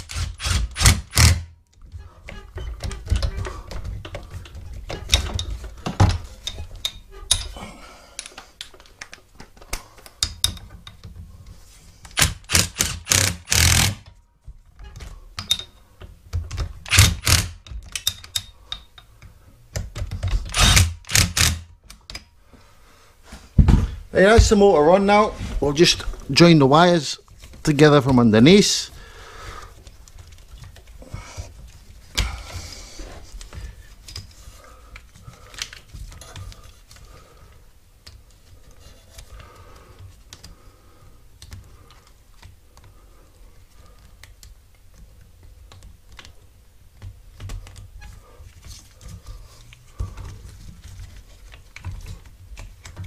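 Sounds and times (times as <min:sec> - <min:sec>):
hands handling wiring clicks: 0:08.2 - 0:11.2, 0:50.9 - 0:53.0.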